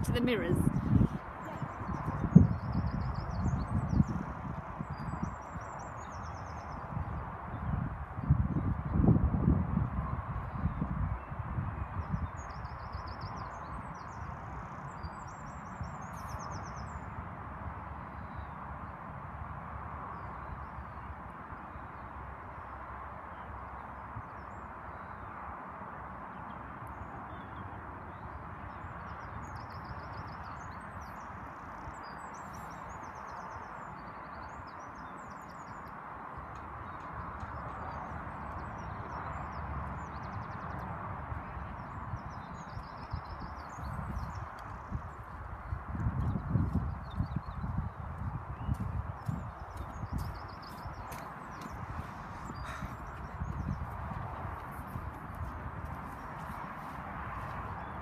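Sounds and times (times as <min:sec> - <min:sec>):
small birds trilling: 0:00.0 - 0:07.8, 0:26.4 - 0:56.9
wind rumble on microphone: 0:00.0 - 0:58.0.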